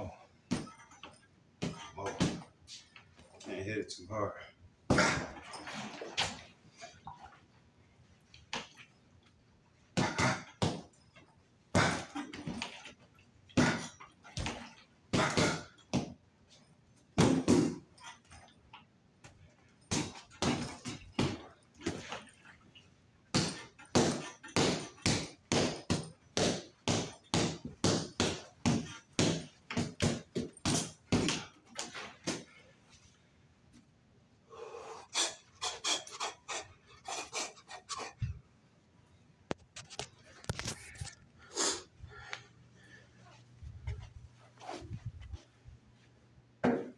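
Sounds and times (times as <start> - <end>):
punches on punching bag: 4.9 - 5.4, 10.0 - 10.9, 11.8 - 12.6, 13.6 - 16.2, 17.2 - 17.9, 19.9 - 22.1, 23.3 - 32.5.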